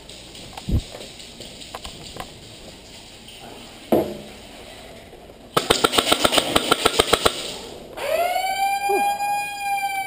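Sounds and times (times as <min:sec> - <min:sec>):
airsoft gun shots: 0:05.6 - 0:07.8.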